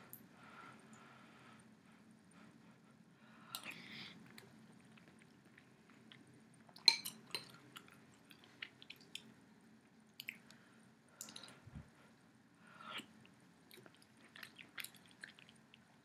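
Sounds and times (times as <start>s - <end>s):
chewing clicks and smacks: 10.2s - 10.6s.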